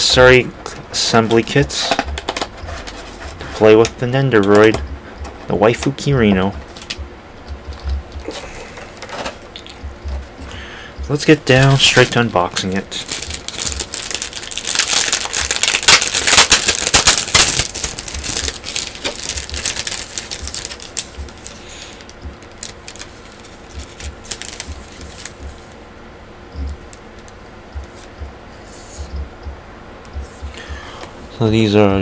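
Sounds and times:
packaging crinkling: 11.2 - 25.8.

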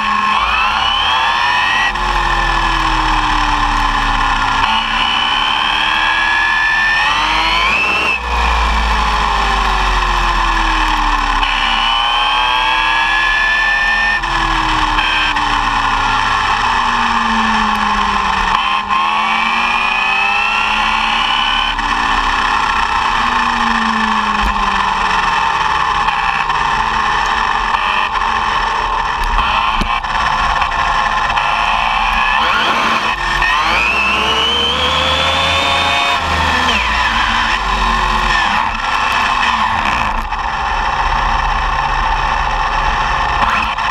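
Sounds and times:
electric motor whine: 0.0 - 43.9.

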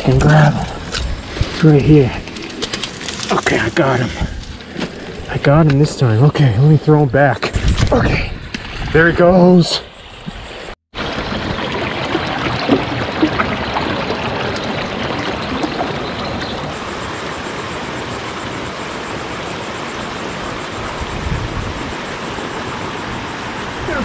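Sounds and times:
water gushing over small dam: 11.0 - 24.0.

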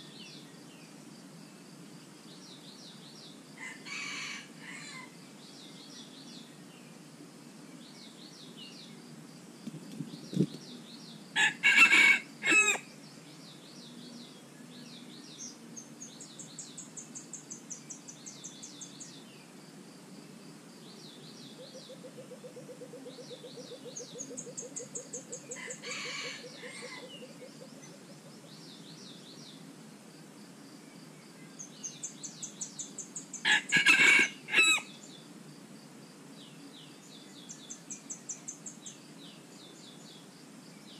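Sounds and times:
insects chirping: 0.0 - 40.9
roosters crowing: 3.6 - 5.2, 11.4 - 12.9, 25.5 - 27.4, 33.4 - 35.0
birds chirping: 9.7 - 19.5.

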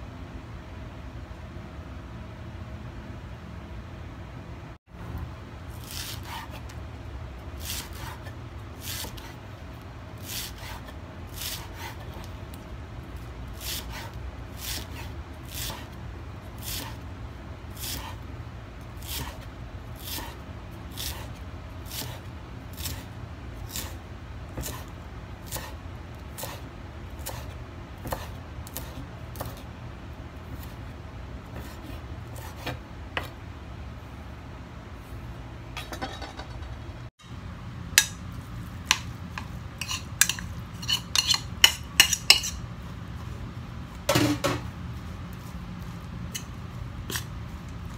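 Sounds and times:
steady low hum: 0.0 - 47.9
knife chopping on wooden board: 24.6 - 24.8, 25.5 - 25.8, 26.4 - 26.6, 27.2 - 29.6, 31.5 - 33.4.

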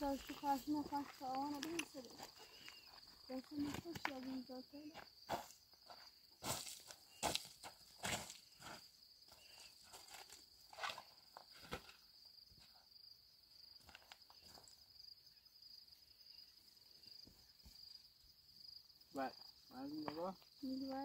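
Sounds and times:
footsteps on gravel: 0.0 - 12.0
crickets chirping: 0.0 - 21.0.

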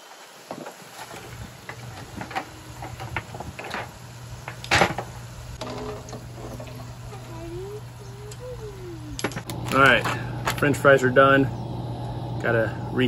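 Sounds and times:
fries sizzling in oil: 0.0 - 8.5.

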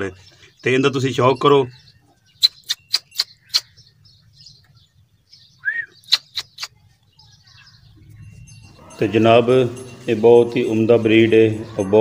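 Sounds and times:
small bird chirping: 0.1 - 8.8.

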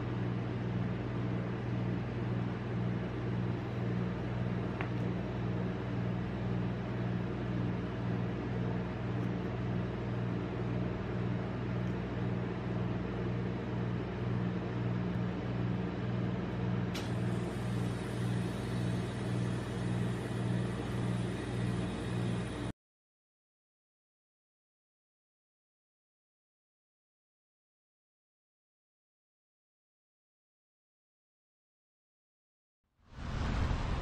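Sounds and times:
refrigeration compressor humming: 0.0 - 22.7.

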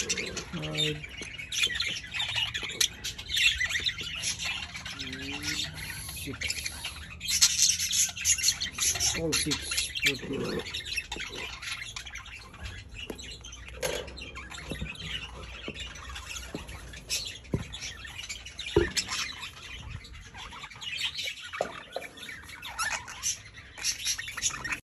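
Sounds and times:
budgerigars chirping and squawking: 0.0 - 24.8.

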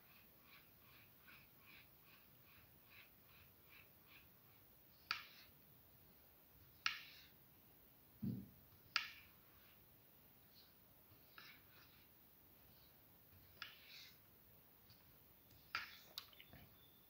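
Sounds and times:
spoon stirring thick batter: 8.7 - 17.0.

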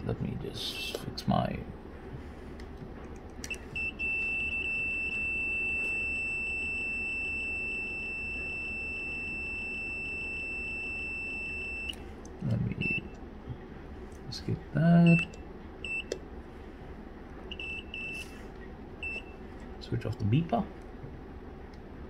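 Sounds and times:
high-pitched meter beep: 3.8 - 12.0, 15.0 - 16.1, 19.0 - 19.4.

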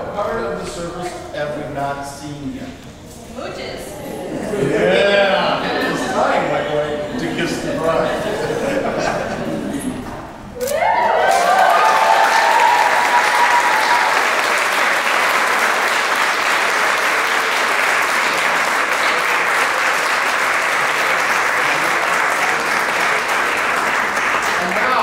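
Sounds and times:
rising whoop: 10.6 - 14.4
crowd clapping and cheering: 10.6 - 25.0.

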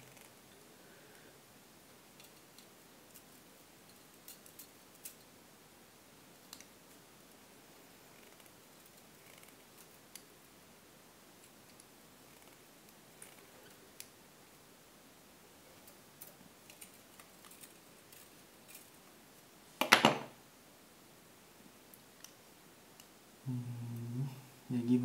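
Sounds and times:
quiet steady hiss: 0.0 - 25.0.

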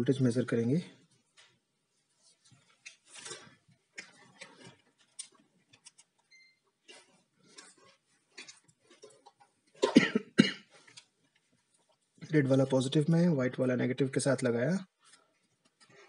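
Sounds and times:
small clicks and rustles: 1.2 - 9.8.

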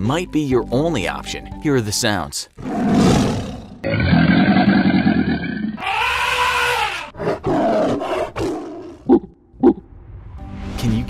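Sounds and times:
animal roar: 2.6 - 9.2.

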